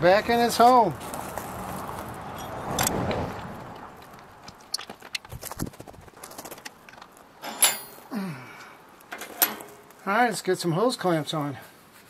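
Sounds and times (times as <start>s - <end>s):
footsteps on gravel: 0.3s - 7.4s
rustling: 3.7s - 8.0s.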